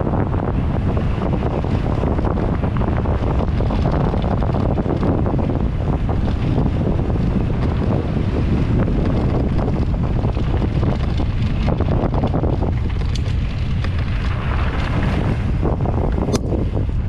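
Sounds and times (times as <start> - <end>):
tyres rumbling on dirt: 0.0 - 17.0
wind rushing over microphone: 0.0 - 17.0
small clicks and rattles: 3.2 - 15.1.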